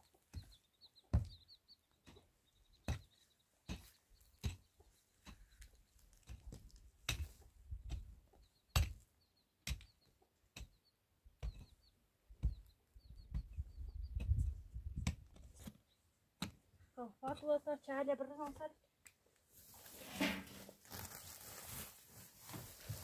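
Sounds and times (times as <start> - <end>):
pick striking stony soil: 6.2 - 8.1.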